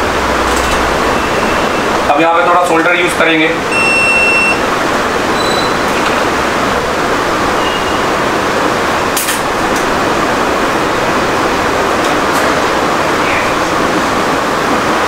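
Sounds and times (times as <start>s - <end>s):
rushing air noise: 0.0s - 15.0s
electronic beeps: 1.1s - 1.9s, 3.7s - 4.6s, 5.4s - 6.1s.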